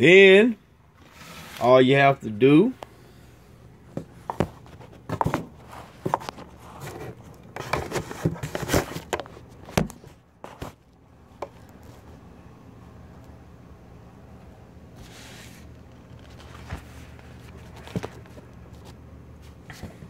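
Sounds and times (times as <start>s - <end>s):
camera handling knocks and rubs: 3.9s - 10.8s, 16.6s - 18.5s.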